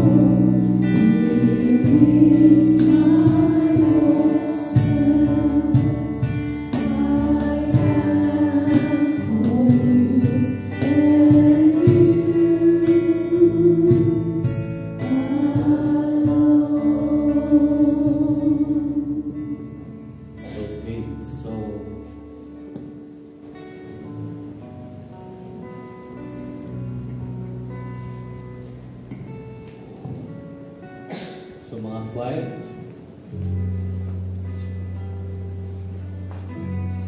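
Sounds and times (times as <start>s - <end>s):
voices singing a worship song: 0.0s - 22.0s
instrumental accompaniment: 0.0s - 37.0s.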